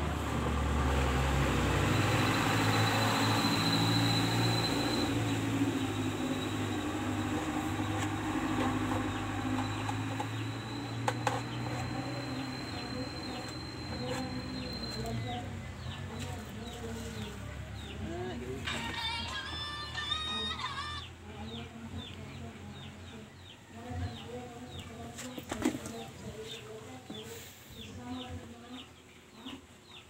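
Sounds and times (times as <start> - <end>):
low mechanical hum: 0.0 - 30.0
thin high whine: 2.2 - 15.2.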